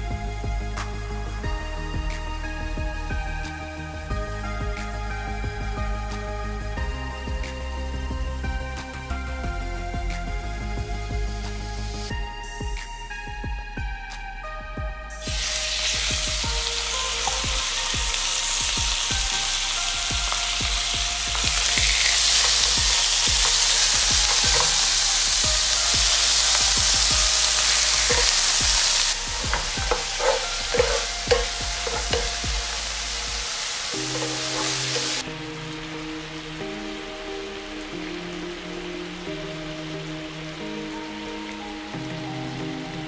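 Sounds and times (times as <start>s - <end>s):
meat sizzling in frying pan: 15.2s - 43.0s
spatula knocking against pan: 28.1s - 28.3s, 29.4s - 32.6s.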